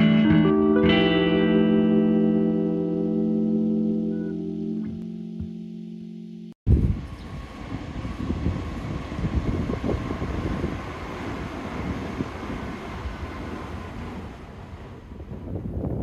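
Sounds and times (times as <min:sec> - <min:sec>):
train wheels rumbling on rails: 0:06.9 - 0:16.0.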